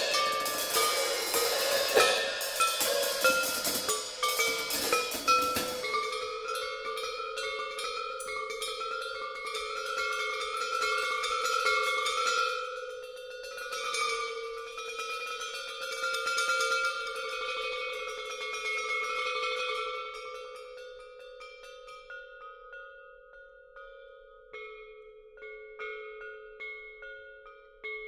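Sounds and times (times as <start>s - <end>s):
sticks striking metal percussion: 0.0s - 17.6s.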